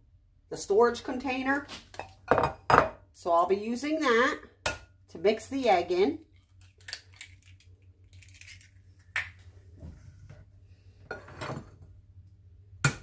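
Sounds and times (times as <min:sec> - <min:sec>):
low steady hum: 0:00.0 - 0:13.0
eggshell crackle: 0:06.3 - 0:09.2.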